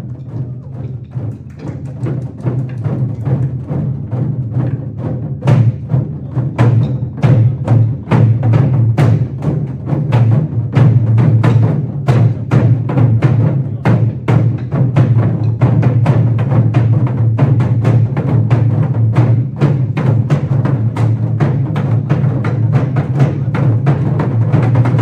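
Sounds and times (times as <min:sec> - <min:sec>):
barrel drums struck in fast rhythm: 0:00.0 - 0:25.0.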